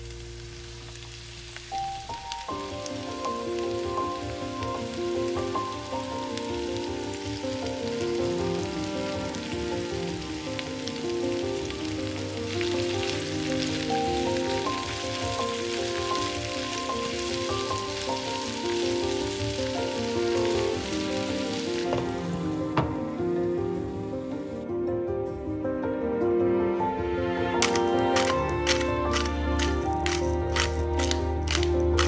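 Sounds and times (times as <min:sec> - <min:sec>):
vegetables sizzling in oil: 0:00.0 - 0:22.6
soft background music: 0:00.0 - 0:32.0.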